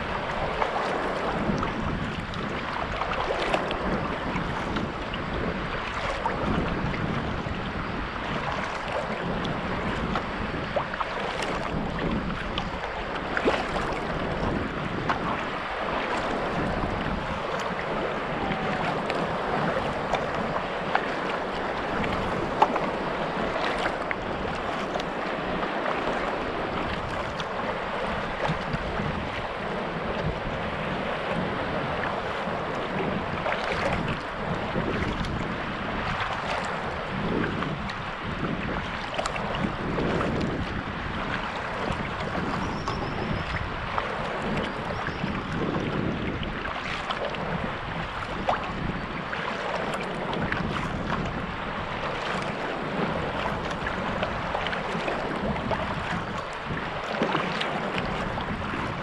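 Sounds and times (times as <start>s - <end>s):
water splashing around kayak: 0.0s - 59.0s
wind buffeting microphone: 0.0s - 59.0s
paddle ticks: 0.1s - 5.2s, 5.8s - 30.6s, 38.9s - 40.7s.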